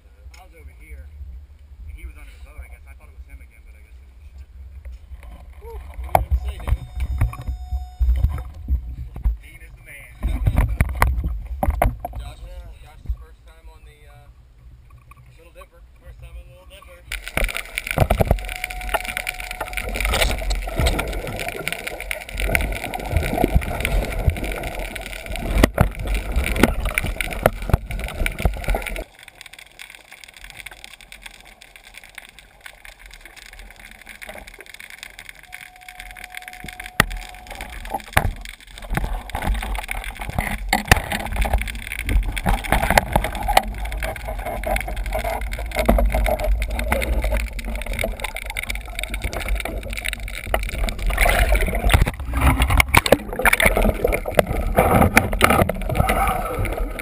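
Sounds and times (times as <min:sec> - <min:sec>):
muffled underwater gurgling: 0:05.3 - 0:14.2, 0:15.3 - 0:29.5, 0:30.3 - 0:57.0.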